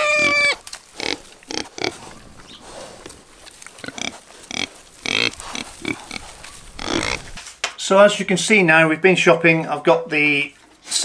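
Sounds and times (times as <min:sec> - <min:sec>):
pigs grunting: 0:00.0 - 0:07.4.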